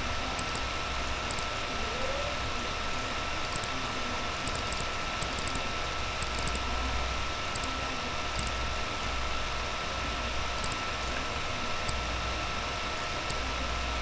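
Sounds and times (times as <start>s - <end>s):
faint steady whine: 0.0s - 14.0s
computer mouse clicking: 0.4s - 0.7s, 1.3s - 1.5s, 3.4s - 3.8s, 4.4s - 5.6s, 6.2s - 6.7s, 7.5s - 7.8s, 8.4s - 8.6s, 10.6s - 10.8s.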